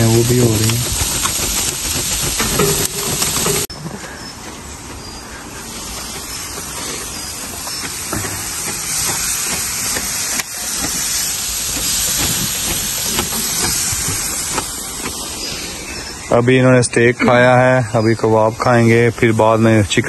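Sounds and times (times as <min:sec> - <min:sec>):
meat sizzling on grill: 0:00.0 - 0:03.7, 0:05.7 - 0:16.2.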